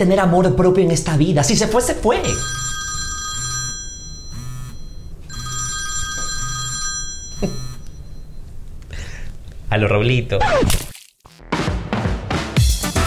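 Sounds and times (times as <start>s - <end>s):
telephone ringing: 2.1s - 8.6s.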